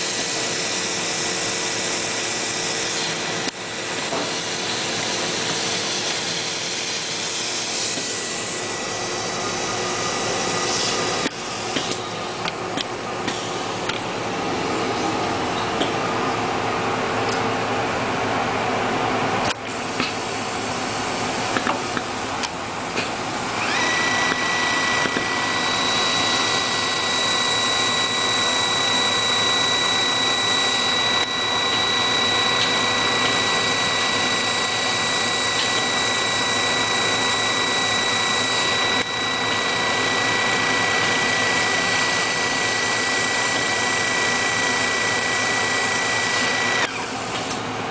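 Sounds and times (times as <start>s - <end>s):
high-pitched whine: 23.4s - 47.1s.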